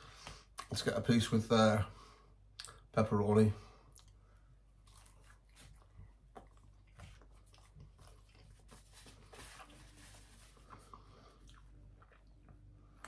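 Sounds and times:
person chewing pizza: 0:03.8 - 0:13.0.

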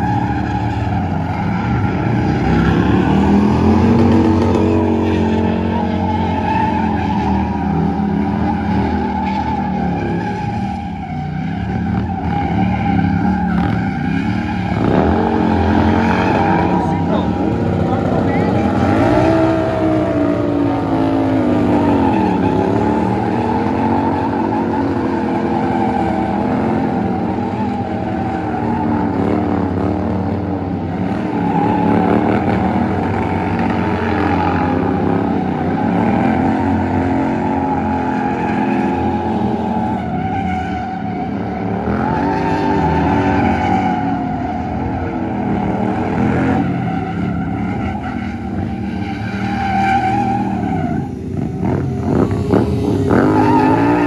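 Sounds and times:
tyre screeching on asphalt: 0:00.0 - 0:54.0
motorcycle engine revving hard: 0:51.3 - 0:54.0.

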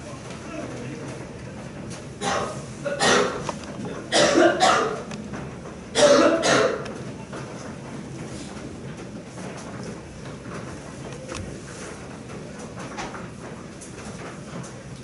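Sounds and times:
person coughing: 0:02.2 - 0:03.4, 0:04.1 - 0:05.1, 0:06.0 - 0:06.8.

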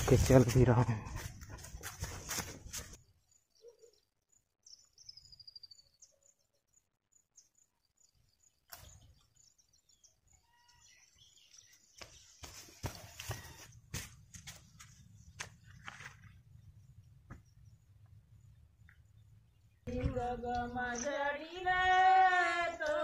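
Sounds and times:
footsteps on grass: 0:00.0 - 0:03.0, 0:11.7 - 0:16.4
bird chirps: 0:03.0 - 0:19.9, 0:20.6 - 0:22.2
bird trill: 0:08.8 - 0:11.8.

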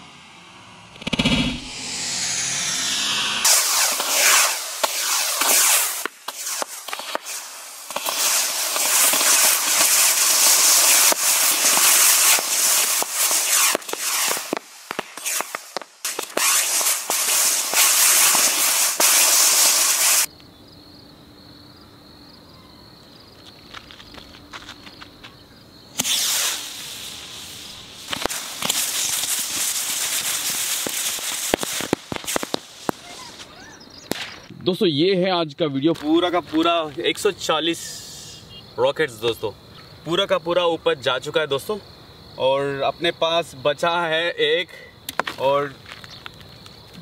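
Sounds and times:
rockets hissing: 0:00.0 - 0:20.3, 0:25.9 - 0:34.6, 0:37.6 - 0:38.6
sharp pops and cracks: 0:03.4 - 0:20.1, 0:28.0 - 0:34.6, 0:45.1 - 0:47.0
faint crackles: 0:26.0 - 0:34.5.

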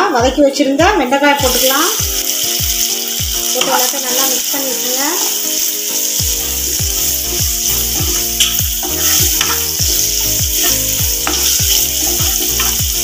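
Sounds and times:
vegetables sizzling in hot oil: 0:01.0 - 0:13.0
wooden spatula stirring: 0:07.0 - 0:13.0.

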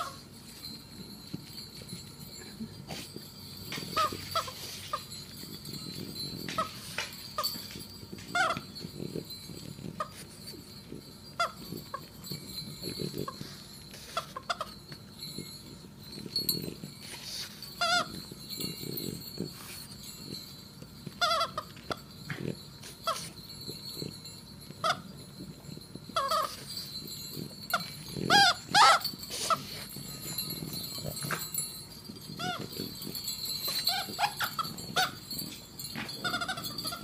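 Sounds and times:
dog breathing: 0:00.0 - 0:37.0
dog chewing: 0:00.0 - 0:37.0
dog toy squeaking: 0:03.7 - 0:10.4, 0:11.3 - 0:15.0, 0:16.4 - 0:20.3, 0:21.1 - 0:22.1, 0:24.8 - 0:25.2, 0:26.1 - 0:37.0.

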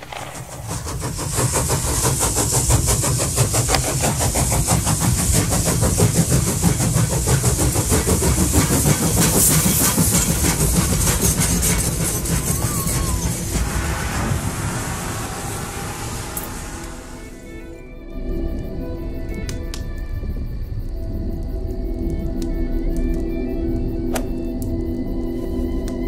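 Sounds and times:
fast mechanical pulsing: 0:00.0 - 0:13.6
high hiss: 0:00.0 - 0:26.0.

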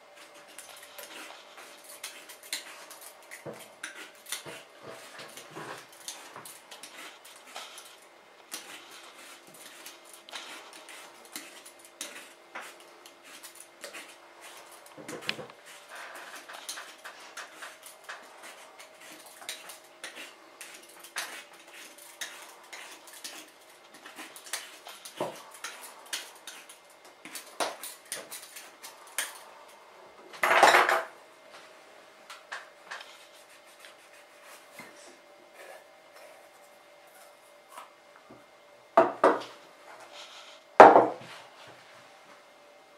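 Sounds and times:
peeler scraping coconut: 0:00.2 - 0:29.4.

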